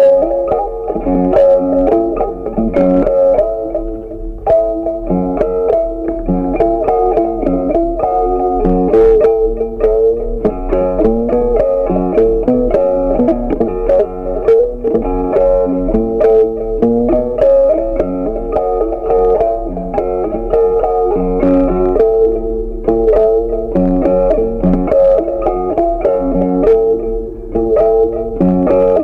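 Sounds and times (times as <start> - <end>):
plucked melody music: 0.0 - 29.0.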